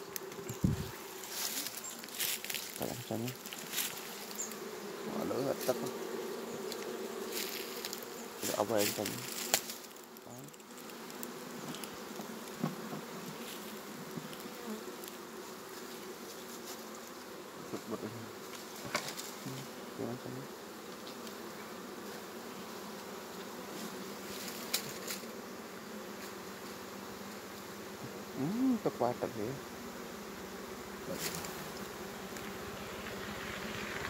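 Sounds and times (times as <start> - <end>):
bees buzzing: 0.0 - 34.0.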